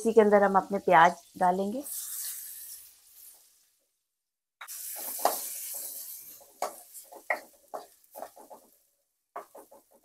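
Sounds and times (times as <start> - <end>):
onions sizzling in pan: 0.0 - 4.0, 4.6 - 10.0
wooden spatula scraping pan: 4.8 - 8.8, 9.4 - 10.0.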